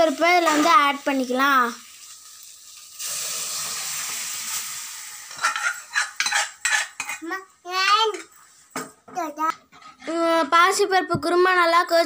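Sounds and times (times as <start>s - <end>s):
hot oil sizzling: 0.0s - 8.8s
spoon and pot clinking and scraping: 5.2s - 7.3s.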